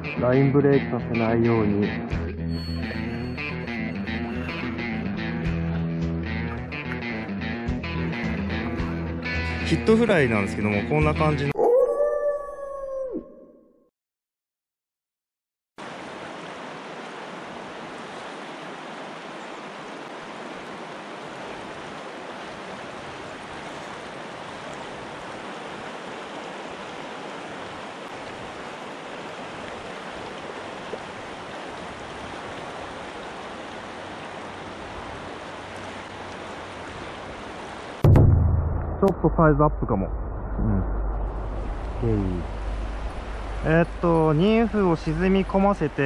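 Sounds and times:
mountain stream rushing: 15.8 - 38.1, 41.1 - 46.0.

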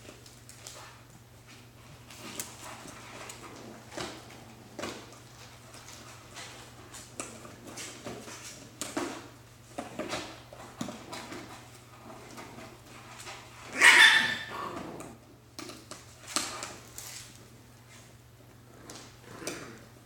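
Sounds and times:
scratching and rustling of cardboard: 0.0 - 13.8, 15.6 - 19.2
puppy yapping: 13.7 - 14.7.

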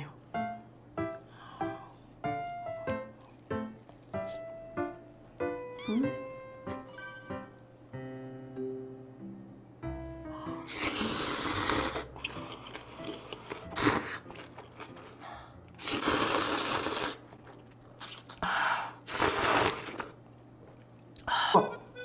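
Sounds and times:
noodles being slurped: 10.7 - 15.2, 15.8 - 18.4, 19.1 - 20.2.

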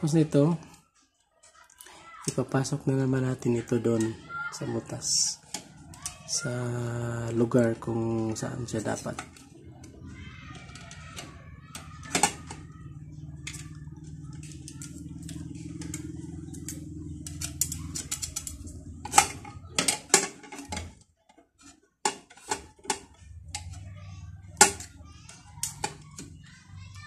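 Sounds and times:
small metal clicks and scrapes: 8.9 - 23.9, 24.5 - 27.0.

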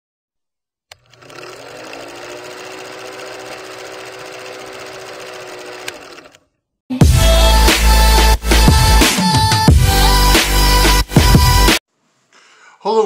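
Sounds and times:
film projector clatter and hum: 0.9 - 6.4.

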